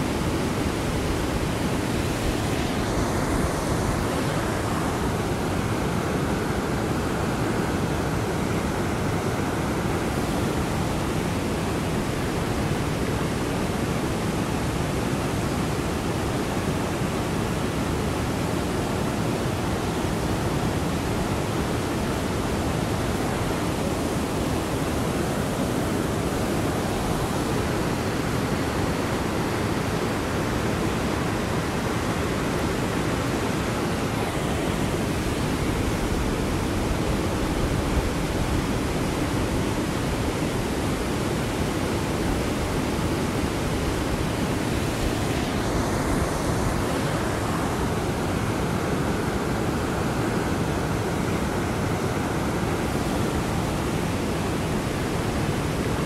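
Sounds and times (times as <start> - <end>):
river rushing through rapids: 0.0 - 56.0.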